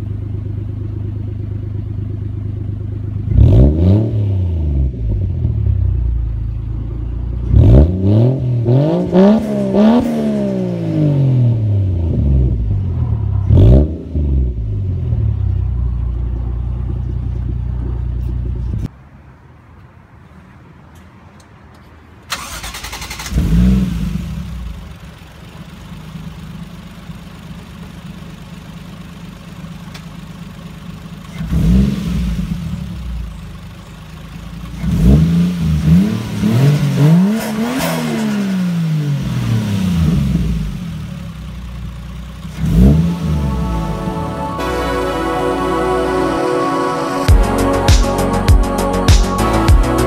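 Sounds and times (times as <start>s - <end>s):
car engine starting and idling: 0.0s - 50.0s
engine revving blips: 3.3s - 18.9s, 34.7s - 47.9s.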